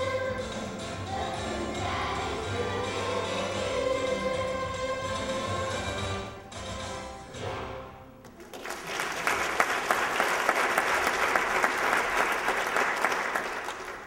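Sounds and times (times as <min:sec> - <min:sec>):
music: 0:00.0 - 0:09.4
audience applauding: 0:08.2 - 0:14.0.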